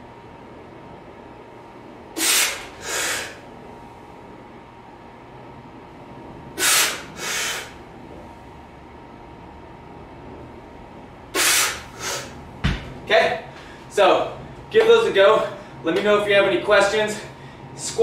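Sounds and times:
person breathing hard: 2.2s - 3.5s, 6.6s - 7.8s, 11.4s - 12.4s.

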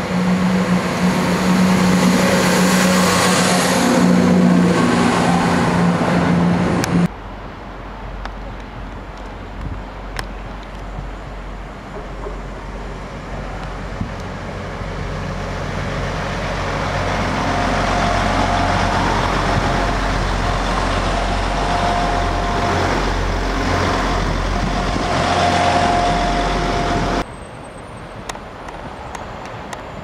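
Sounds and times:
diesel train engine drone: 0.0s - 30.0s
train wheels on rails: 8.3s - 27.3s.

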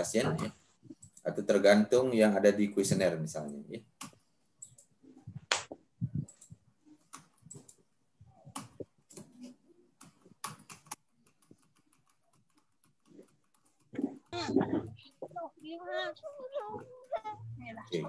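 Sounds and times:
computer keyboard clicks: 10.0s - 14.1s.

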